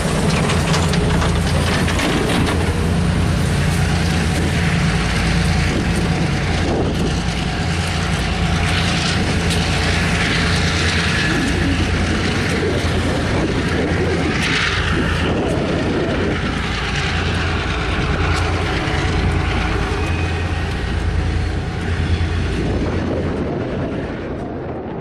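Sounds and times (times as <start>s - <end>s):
diesel locomotive engine drone: 0.0s - 25.0s.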